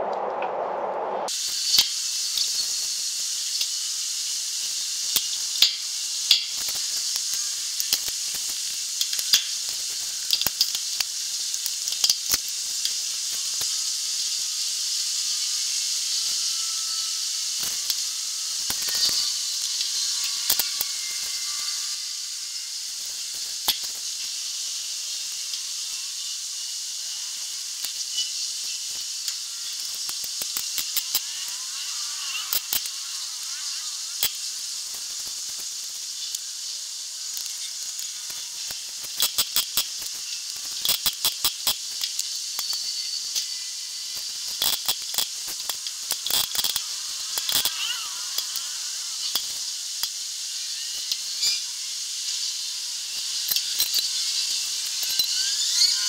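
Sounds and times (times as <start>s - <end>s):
steady high hiss: 0.0s - 56.0s.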